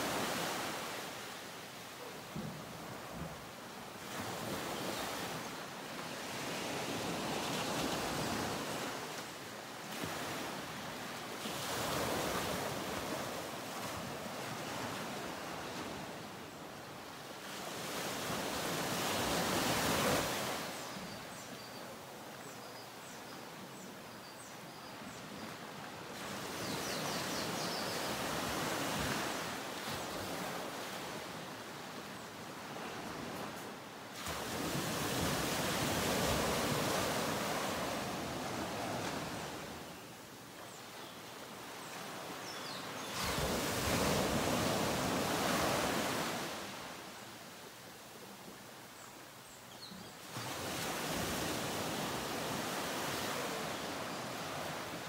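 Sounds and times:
ocean surf washing in: 0:00.0 - 0:01.3.

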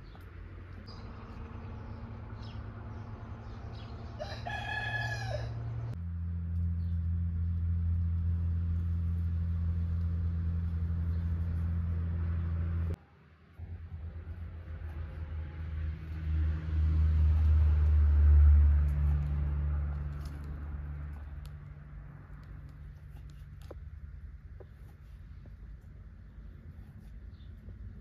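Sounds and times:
rooster crowing: 0:04.0 - 0:06.0
steady low hum: 0:05.4 - 0:28.0.

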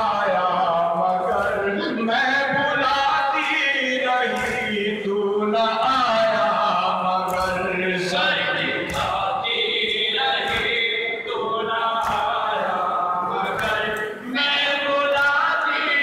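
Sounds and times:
men chanting together: 0:00.0 - 0:16.0
sharp chest slaps: 0:08.9 - 0:09.3, 0:12.0 - 0:12.4.

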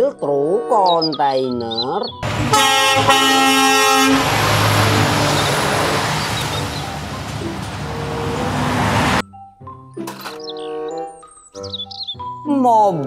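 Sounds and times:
truck driving past: 0:02.2 - 0:09.2
truck horn: 0:02.2 - 0:09.2.

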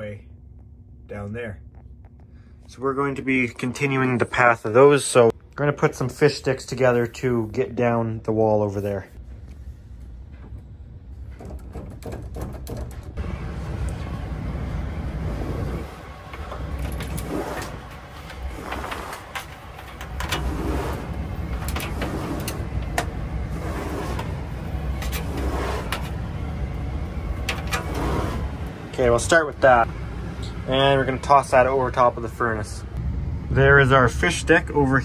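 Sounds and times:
low rumble: 0:13.2 - 0:35.0
rustling and scraping cables: 0:15.1 - 0:26.3, 0:27.3 - 0:28.7.

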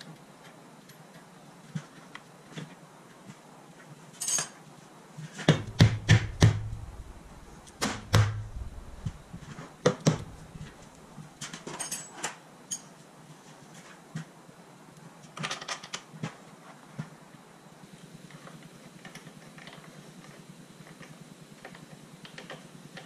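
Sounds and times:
dead-blow hammer thuds on metal: 0:05.5 - 0:09.3.

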